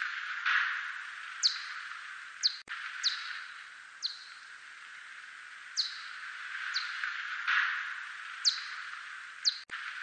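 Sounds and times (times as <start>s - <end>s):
steady hiss: 0.0s - 10.0s
bat echolocation chirps: 0.8s - 4.6s, 5.7s - 7.0s, 7.9s - 9.7s.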